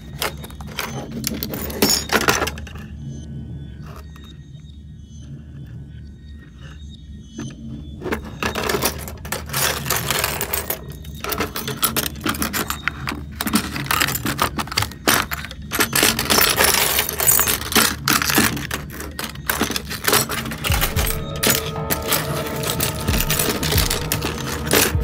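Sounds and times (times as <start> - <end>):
mirror shards clattering: 8.4 - 25.0.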